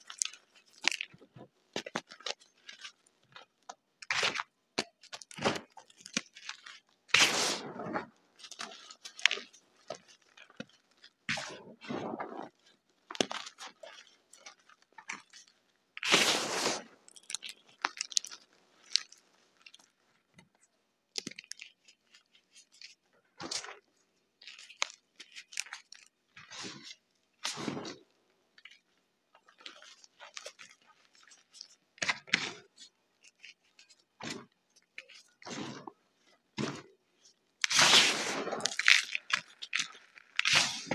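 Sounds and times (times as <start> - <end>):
hands crunching gritty chalk: 1.8 - 19.9, 37.6 - 40.9.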